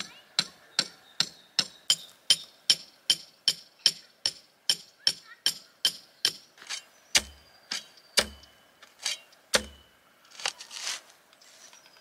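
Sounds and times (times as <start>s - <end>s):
post-hole digger thuds with metallic ring: 0.0s - 10.0s
soil scraping: 6.6s - 8.0s, 8.8s - 12.0s.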